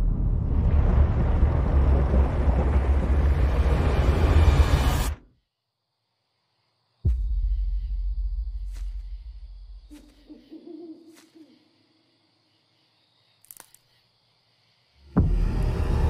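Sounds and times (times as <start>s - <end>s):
owl hooting: 9.8s - 11.9s.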